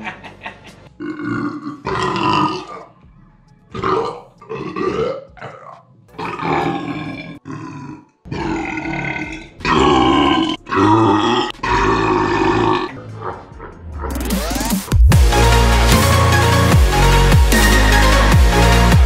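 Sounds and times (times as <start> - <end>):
men burping: 1.0 - 2.9, 3.8 - 14.1.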